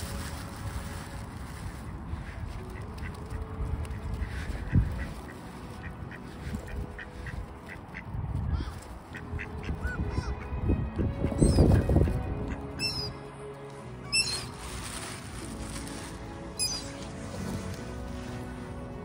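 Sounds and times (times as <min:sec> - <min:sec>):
ducks quacking: 0:01.8 - 0:13.2.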